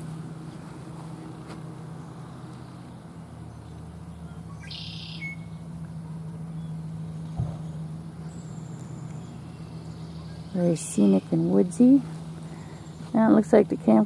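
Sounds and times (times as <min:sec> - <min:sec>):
steady low hum: 0:00.0 - 0:14.0
bird buzzy trill: 0:04.6 - 0:05.6.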